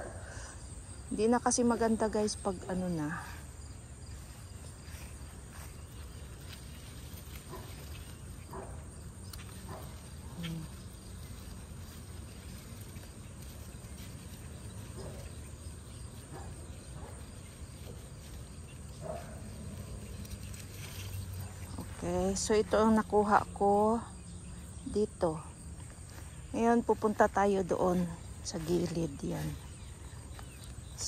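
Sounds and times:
rustling of vines: 0.2 - 31.0
pruning shears snipping stems: 7.2 - 14.2.

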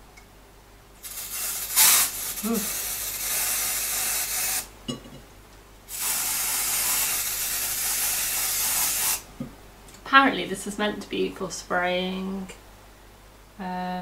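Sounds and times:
aerosol spray hissing: 1.0 - 4.7, 5.9 - 9.3.

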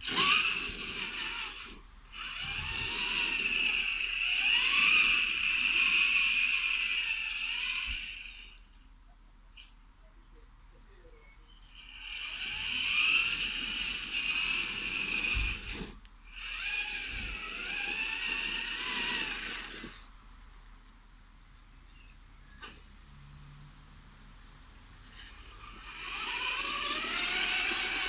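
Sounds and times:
model truck motors whining: 0.0 - 8.9, 11.3 - 21.0, 24.4 - 28.0.

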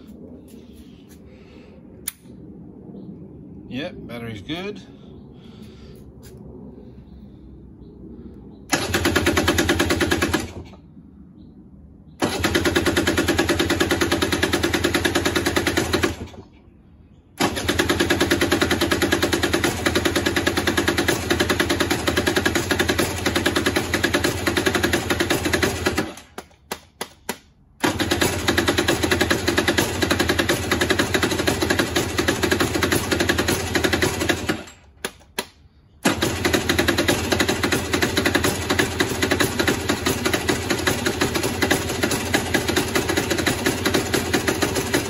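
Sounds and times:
short clicks: 2.0 - 2.3
electric starter cranking engine: 8.7 - 10.8, 12.2 - 16.6, 17.4 - 26.4, 27.8 - 35.0, 36.0 - 45.0.

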